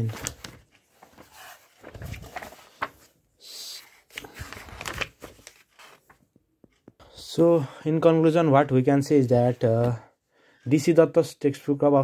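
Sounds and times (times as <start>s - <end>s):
book pages rustling: 0.0s - 3.2s, 3.8s - 7.0s.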